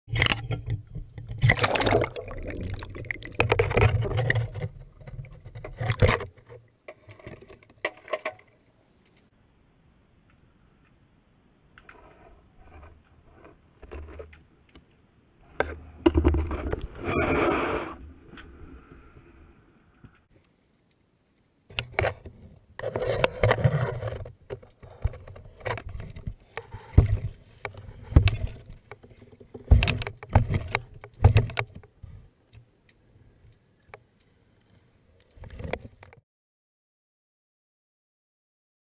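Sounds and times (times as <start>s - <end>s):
water sloshing and splashing: 0.1s - 8.4s
knocks and scrapes on camera: 15.6s - 17.4s, 21.8s - 32.2s.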